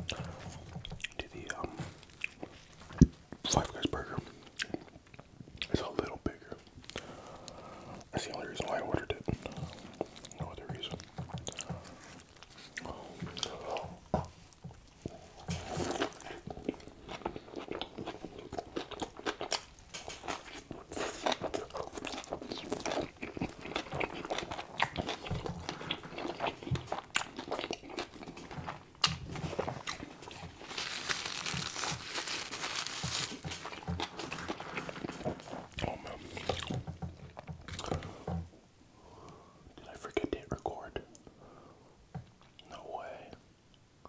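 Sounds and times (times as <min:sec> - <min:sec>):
biting and chewing burger: 0:06.8 - 0:38.4
paper napkin rustling: 0:29.3 - 0:35.7.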